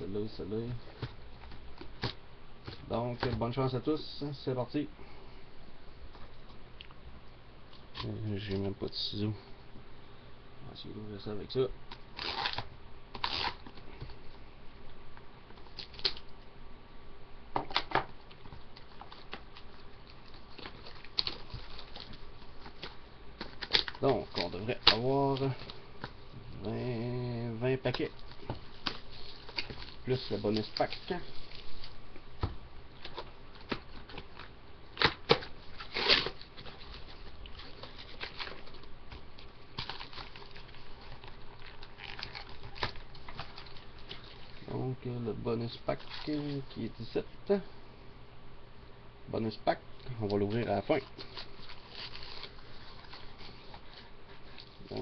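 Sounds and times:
card packs rustling: 18.7 - 32.0.

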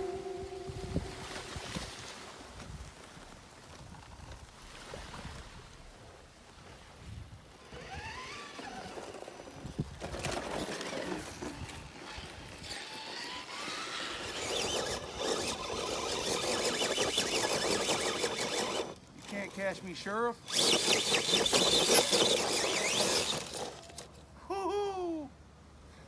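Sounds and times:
electric motor whining: 0.0 - 1.6, 7.6 - 19.8, 20.4 - 24.1
tyres scraping and crunching over rock: 7.9 - 24.2.

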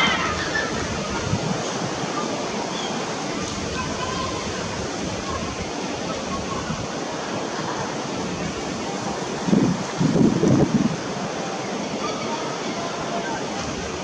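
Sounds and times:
wind noise on microphone: 0.0 - 14.0.

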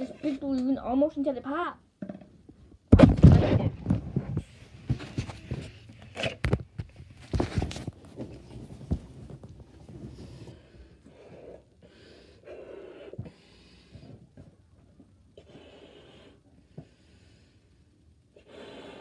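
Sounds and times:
handling knocks and rustles: 3.0 - 10.5.

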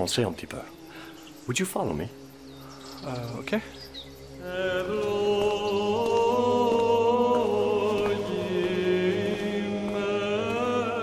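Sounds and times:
steady low drone: 2.2 - 11.0
chanting in long held notes: 2.4 - 11.0.

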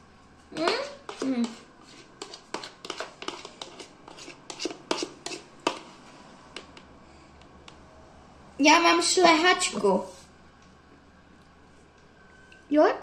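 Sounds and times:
metal spoon scraping a bowl: 0.6 - 6.7.

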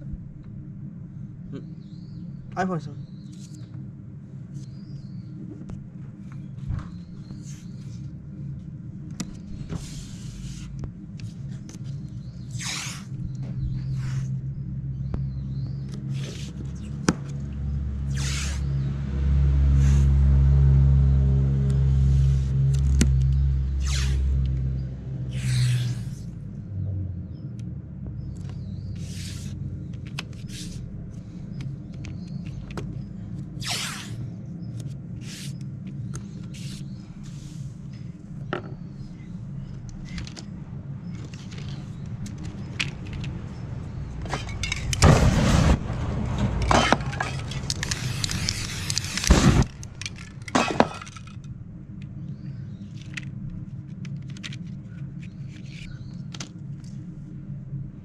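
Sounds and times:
low hum: 0.0 - 58.0
spray paint can hissing: 18.1 - 18.6, 29.0 - 29.5, 47.8 - 49.4.

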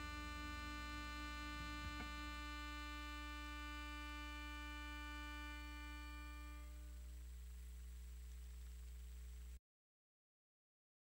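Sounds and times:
long held music chord: 0.0 - 7.0
low hum: 0.0 - 9.6.

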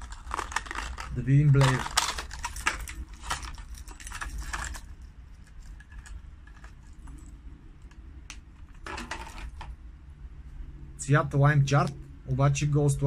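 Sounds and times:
plastic packaging crinkling: 0.0 - 7.2, 8.7 - 9.7.

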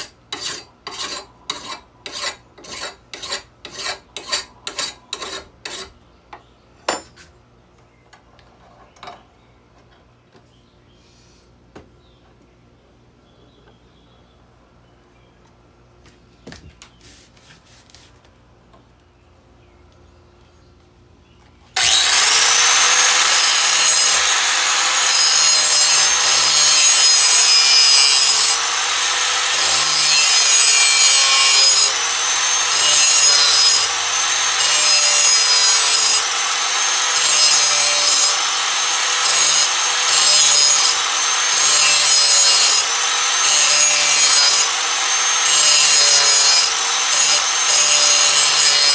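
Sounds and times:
angle grinder grinding metal: 21.8 - 48.9.

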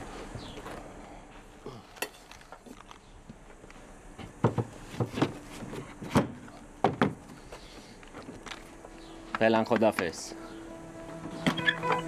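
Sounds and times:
knocks in car trunk: 6.1 - 7.2.

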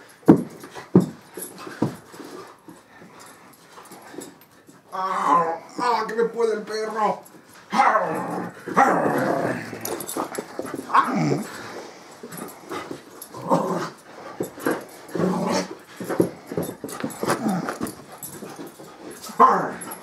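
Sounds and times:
dog growling and yipping: 4.9 - 5.8, 7.7 - 15.9, 17.0 - 20.0.

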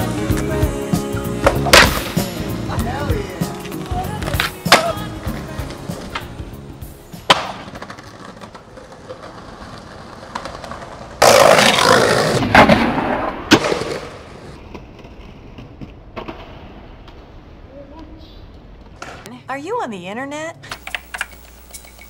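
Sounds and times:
background music: 0.0 - 8.5
skateboard wheels rolling on concrete: 0.0 - 19.3
skateboard clack: 3.6 - 6.4, 7.2 - 17.4.

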